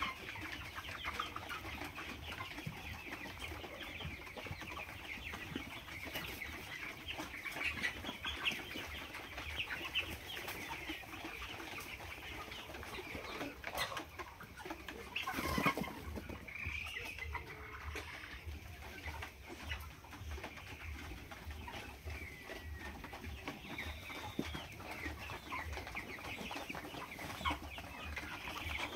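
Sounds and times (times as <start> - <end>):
chickens clucking: 0.0 - 28.9.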